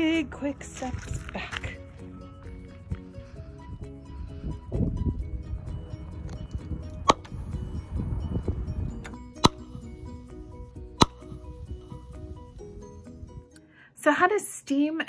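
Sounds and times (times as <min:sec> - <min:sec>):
background music: 0:00.0 - 0:14.4.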